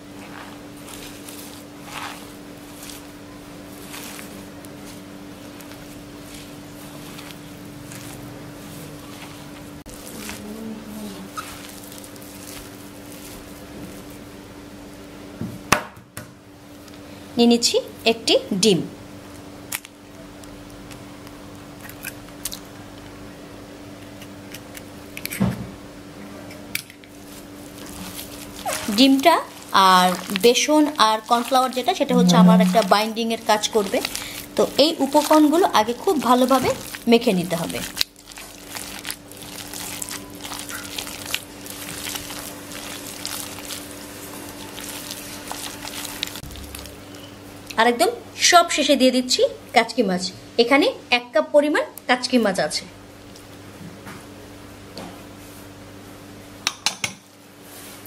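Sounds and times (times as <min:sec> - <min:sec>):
hand squelching wet batter: 0:00.4 - 0:14.2, 0:27.2 - 0:47.0
low hum: 0:27.7 - 0:47.8.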